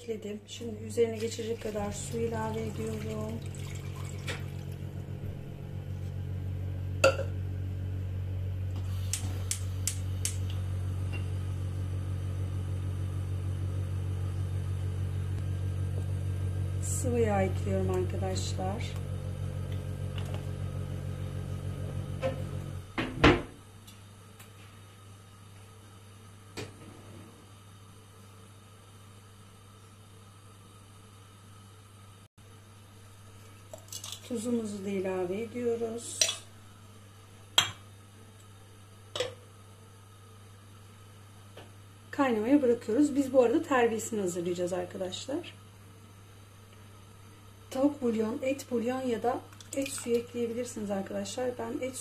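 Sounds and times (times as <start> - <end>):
steady low hum: 0.0 - 52.0
glass clinking set down: 7.0 - 7.4
gas stove igniter clicks: 9.0 - 10.6.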